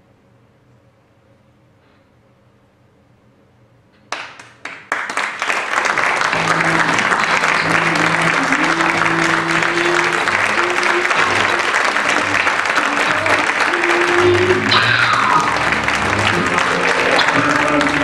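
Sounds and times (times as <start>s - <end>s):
audience applause: 4.1s - 18.0s
slow melodic music: 6.3s - 18.0s.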